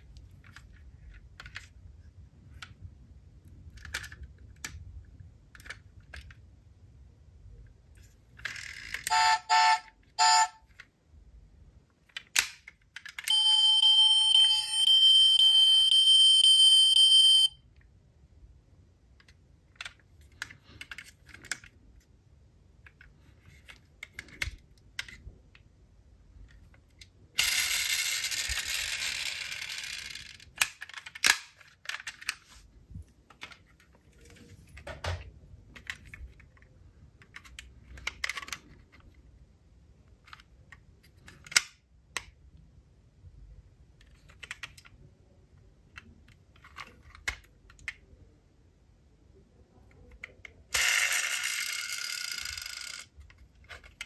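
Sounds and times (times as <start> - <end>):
short electronic beeps: 13.3 - 17.6
toy cars clicking and tapping: 27.0 - 32.4, 50.0 - 54.0.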